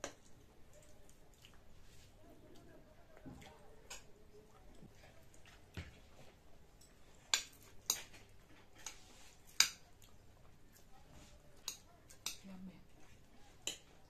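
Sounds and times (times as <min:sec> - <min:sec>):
fork and chopsticks clicking on plates: 0:06.8 - 0:10.2, 0:11.6 - 0:12.5, 0:13.6 - 0:14.0.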